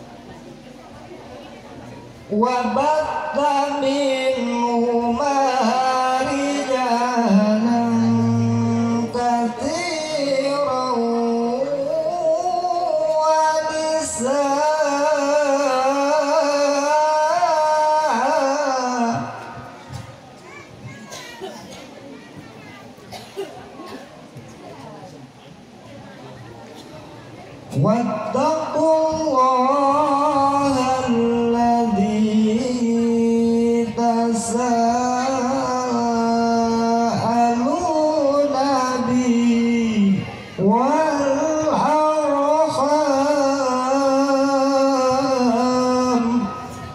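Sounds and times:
man reciting melodically: 2.3s - 20.0s, 27.7s - 46.9s.

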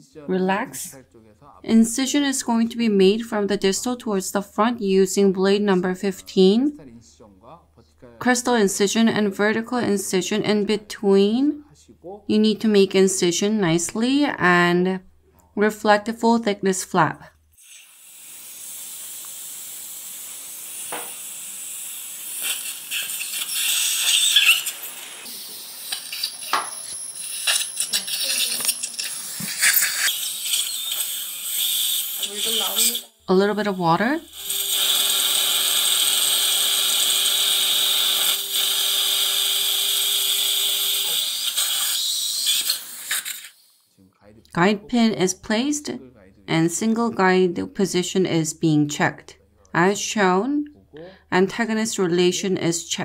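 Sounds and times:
dental drill motor hum: 17.6s - 43.7s
suction tip hissing: 17.6s - 43.9s.

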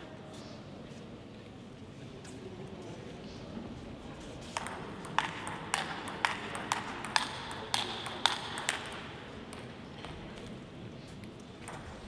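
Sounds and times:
table tennis ball clicking: 4.6s - 9.7s.

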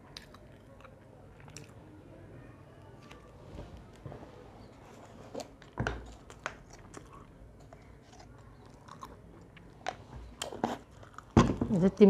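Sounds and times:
person chewing: 0.0s - 1.8s, 5.1s - 11.4s.

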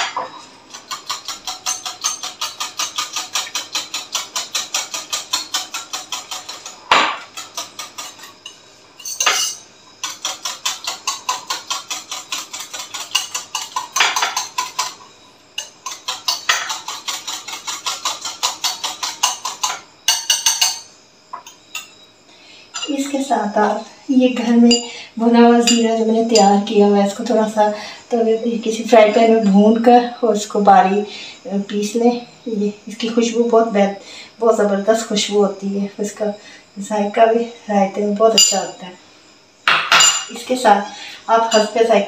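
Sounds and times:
spoon beating yogurt in a bowl: 0.7s - 8.4s, 10.0s - 15.0s, 15.6s - 20.8s
spoon knocking bowl: 18.4s - 20.8s, 39.7s - 40.3s.

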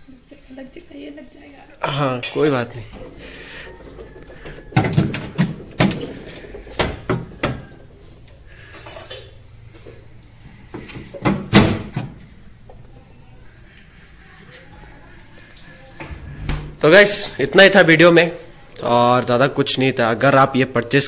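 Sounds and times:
household objects knocking and clinking: 2.3s - 7.9s.

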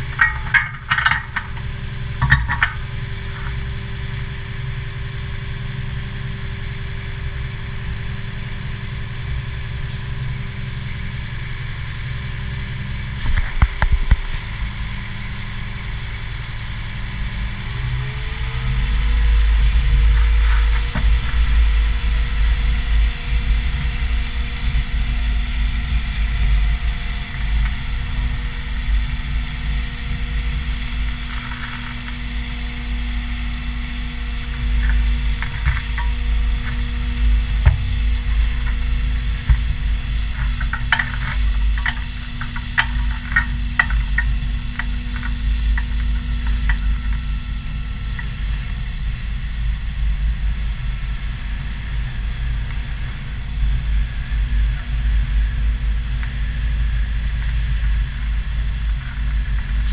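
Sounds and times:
diesel engine running: 0.0s - 59.9s
hydraulic whine: 0.0s - 59.9s.

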